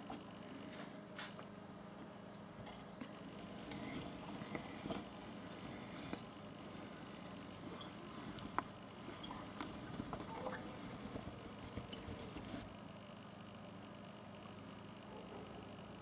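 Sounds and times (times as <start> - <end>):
faint room hiss and hum: 0.0 - 16.0.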